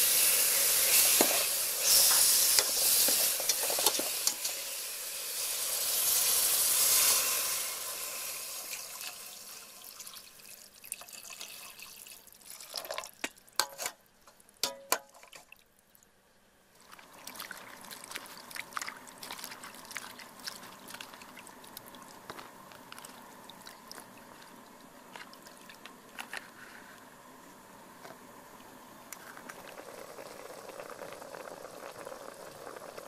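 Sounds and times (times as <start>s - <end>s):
water poured into metal pot: 0.2s - 14.0s
water splashing and dripping: 16.9s - 22.3s.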